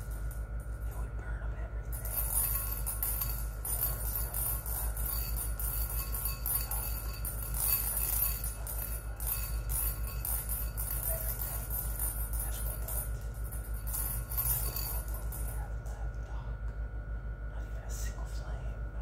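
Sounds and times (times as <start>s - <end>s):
steady low hum: 0.0s - 19.0s
light jingling tinkle: 1.8s - 16.3s.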